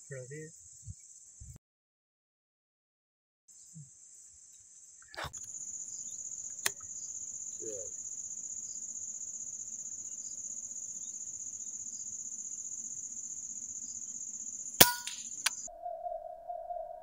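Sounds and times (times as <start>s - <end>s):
insects chirring: 3.5s - 16.8s
sharp click: 14.8s - 15.7s.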